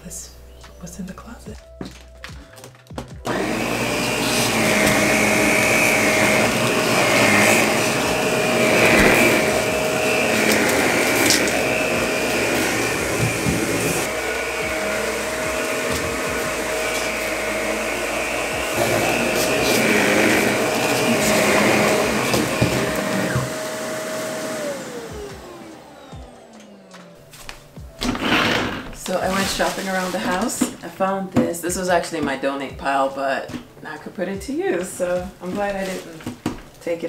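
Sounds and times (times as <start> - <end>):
vacuum cleaner running on carpet: 3.3 - 27.2, 27.8 - 30.4.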